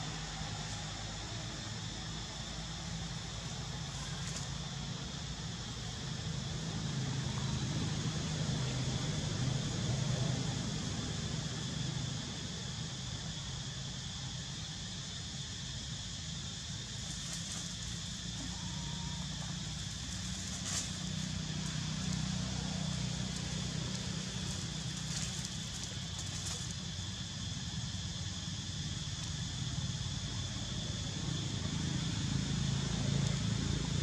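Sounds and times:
high-pitched insect drone: 0:00.0 - 0:34.0
dry leaves crackling: 0:16.8 - 0:30.0.

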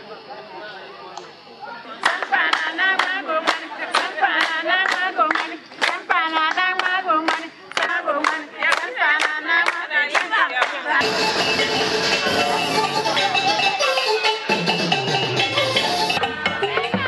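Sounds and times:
voices singing together: 0:01.8 - 0:17.0
hand claps: 0:02.0 - 0:10.8.

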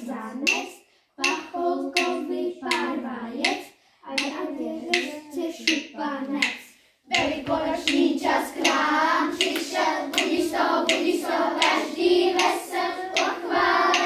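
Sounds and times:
children singing together: 0:00.0 - 0:14.0
hand claps on a steady beat: 0:04.2 - 0:14.0.

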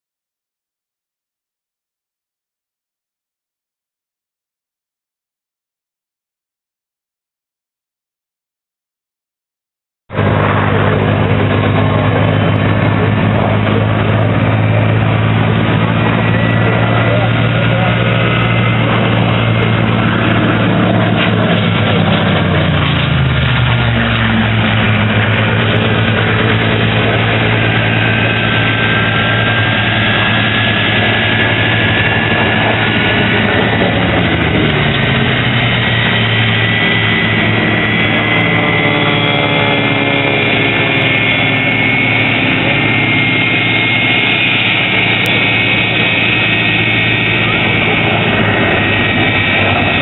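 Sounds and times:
jet engine whining at idle: 0:10.1 - 0:50.0
propeller plane flying past: 0:10.1 - 0:50.0.

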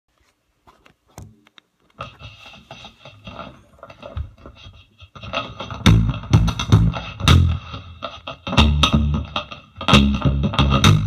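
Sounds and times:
scratching and scraping: 0:02.0 - 0:05.9.

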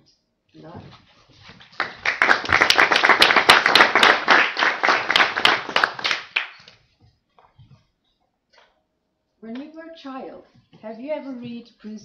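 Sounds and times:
audience applause: 0:01.8 - 0:06.7.

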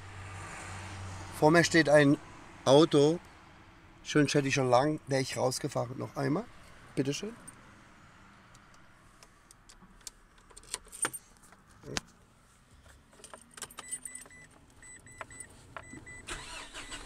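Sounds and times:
car keys jangling: 0:09.6 - 0:11.9, 0:12.9 - 0:16.9
engine starting: 0:16.1 - 0:17.0.

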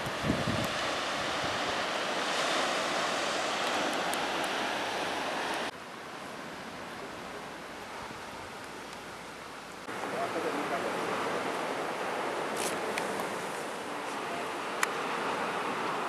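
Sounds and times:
rushing outdoor noise: 0:00.0 - 0:16.0.

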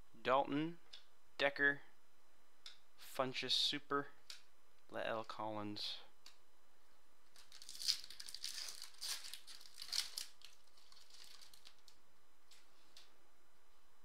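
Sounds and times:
soft handling of cards: 0:07.2 - 0:13.2
foil wrapper crinkling: 0:07.3 - 0:12.0.

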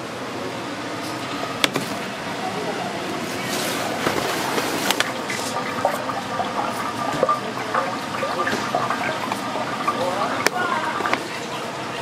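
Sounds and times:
liquid running and splashing: 0:03.1 - 0:12.0.

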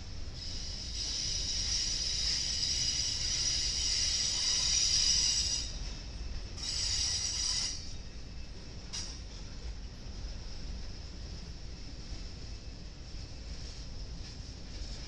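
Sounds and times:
freight train rolling rumble: 0:00.0 - 0:15.0
steel wheels squealing on rail: 0:00.1 - 0:09.5.

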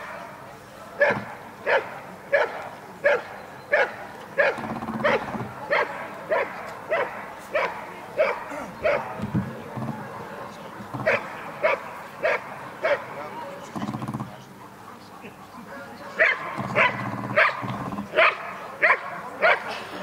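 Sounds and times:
dog barking: 0:01.0 - 0:09.2, 0:11.0 - 0:13.1, 0:16.2 - 0:19.8.

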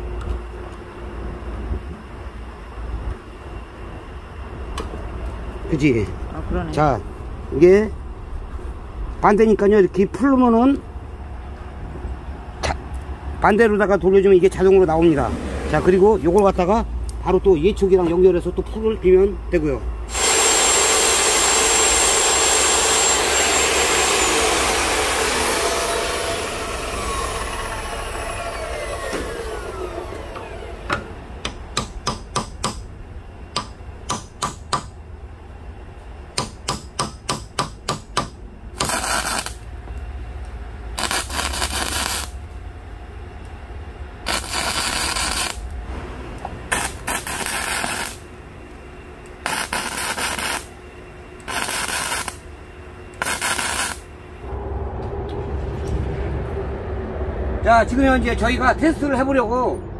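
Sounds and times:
arc welding crackle: 0:20.1 - 0:25.2, 0:38.8 - 0:39.7, 0:40.4 - 0:42.4, 0:44.2 - 0:45.8, 0:46.7 - 0:48.4, 0:49.3 - 0:50.8, 0:51.4 - 0:52.6, 0:53.2 - 0:54.2
chop saw cutting metal: 0:20.1 - 0:27.9, 0:38.8 - 0:39.6, 0:53.2 - 0:54.0
saw blade whining down: 0:20.1 - 0:31.2, 0:38.8 - 0:39.6, 0:41.0 - 0:42.4, 0:44.2 - 0:45.7, 0:46.7 - 0:48.3, 0:49.4 - 0:50.7, 0:51.5 - 0:52.4, 0:53.2 - 0:54.6.

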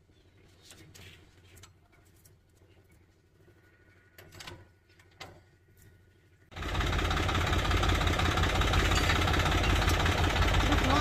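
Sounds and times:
tractor diesel engine running: 0:06.5 - 0:11.0.

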